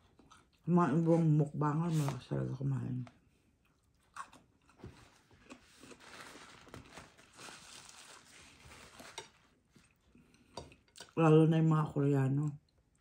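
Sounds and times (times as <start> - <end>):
paper napkin crinkling: 4.8 - 9.9.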